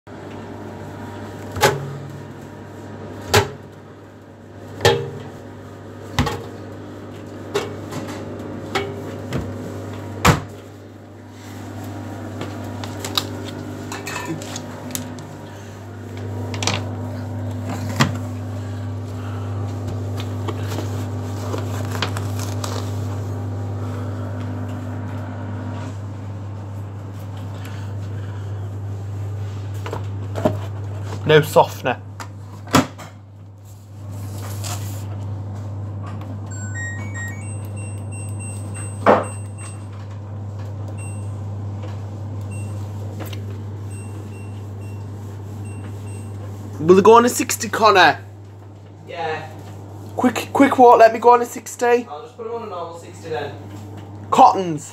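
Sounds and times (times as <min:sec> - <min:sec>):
steady low hum: 0:00.6 - 0:31.2
higher steady tone: 0:36.5 - 0:39.9.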